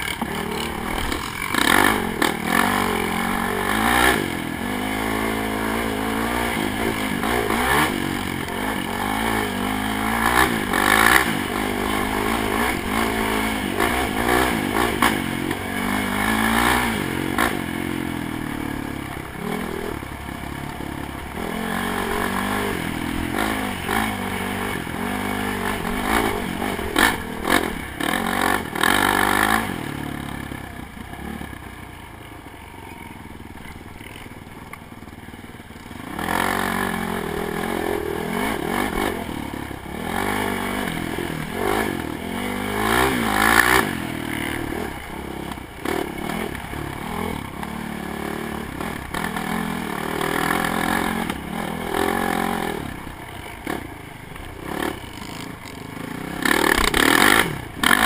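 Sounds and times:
atv engine revving: 0.0s - 31.8s, 32.4s - 58.0s.

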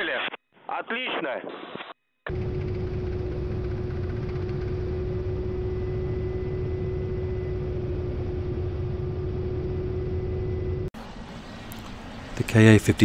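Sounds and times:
constant whine: 2.3s - 13.0s
helicopter rotor and turbine noise: 2.3s - 13.0s.

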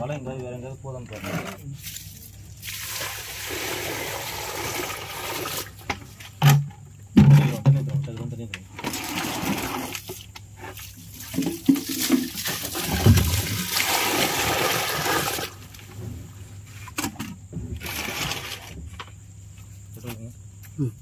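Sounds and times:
water pouring and splashing: 1.7s - 6.6s, 8.7s - 16.0s.

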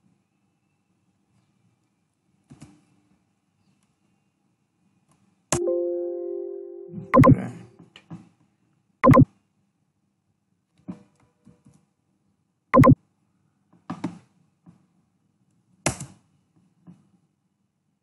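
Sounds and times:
computer mouse clicks: 12.8s - 13.0s.

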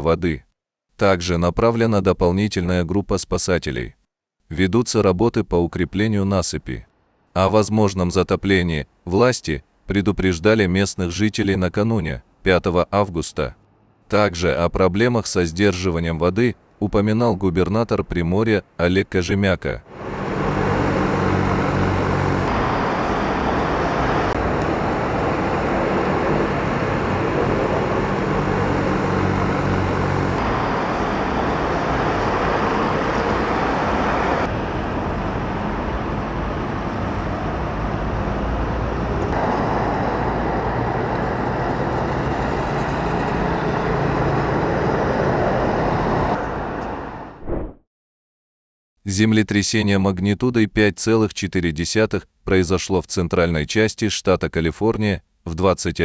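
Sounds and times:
heavy machinery diesel engines: 19.9s - 47.2s.

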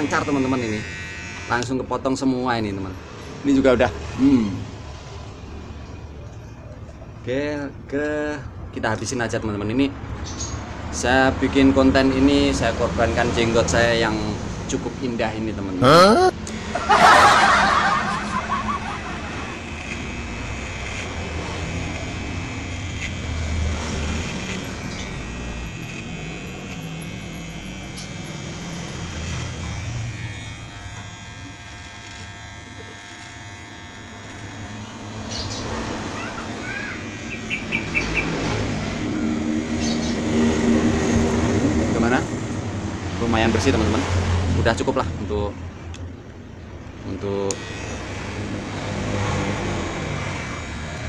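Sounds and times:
electric hair clipper buzzing: 0.0s - 3.4s, 16.4s - 44.5s, 47.4s - 51.0s.

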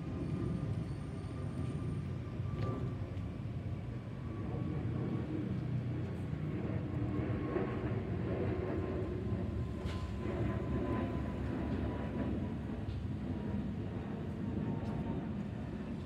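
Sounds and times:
jet flyover rumble and whine: 0.0s - 16.0s.

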